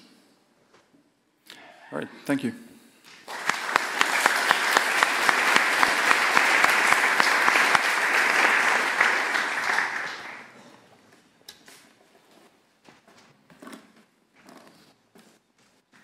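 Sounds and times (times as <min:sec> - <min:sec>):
audience applauding: 0:03.2 - 0:10.7.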